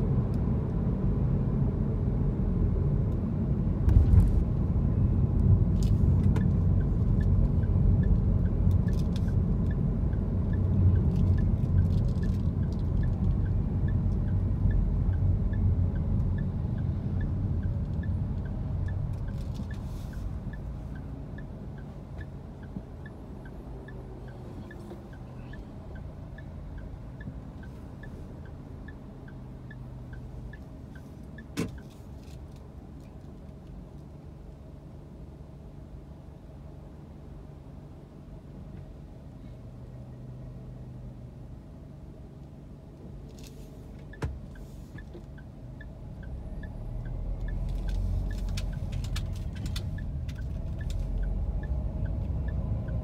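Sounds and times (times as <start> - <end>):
road and engine rumble: 0.0 - 53.0
car engine idling: 3.2 - 32.2
turn signal ticking: 4.7 - 34.2, 43.9 - 53.0.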